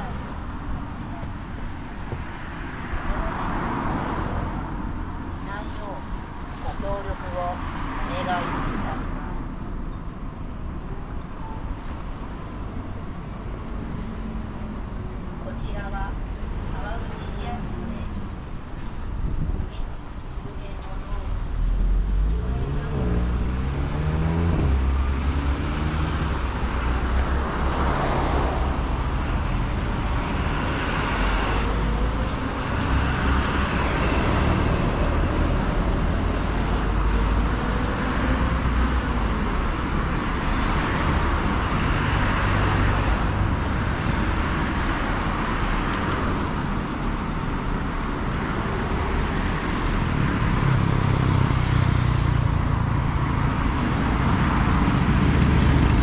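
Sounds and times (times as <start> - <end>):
low traffic rumble: 0.0 - 56.0
vehicles passing close by: 0.0 - 56.0.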